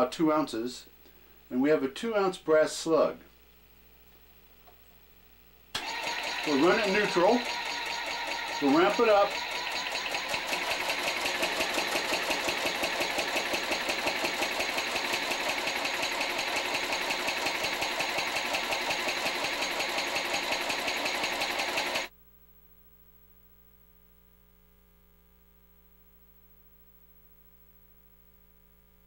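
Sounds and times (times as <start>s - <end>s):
rhythmic mechanical clatter: 5.8s - 22.1s.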